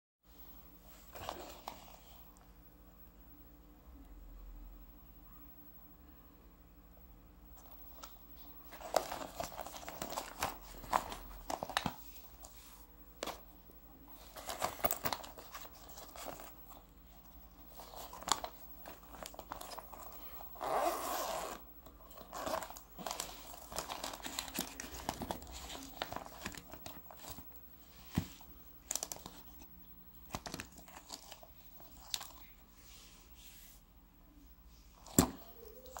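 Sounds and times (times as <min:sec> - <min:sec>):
fabric and plastic rustling: 0:07.6 - 0:33.8.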